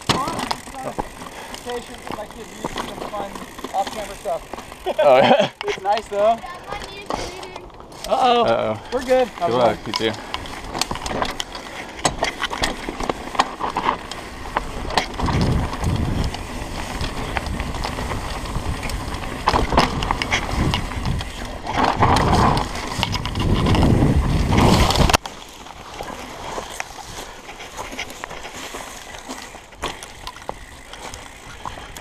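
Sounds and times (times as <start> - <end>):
bike crashing: 0.0 - 32.0
bike rattling and clicking: 0.0 - 32.0
bike tyres on dirt: 0.0 - 32.0
wind rumble on microphone: 14.7 - 25.2.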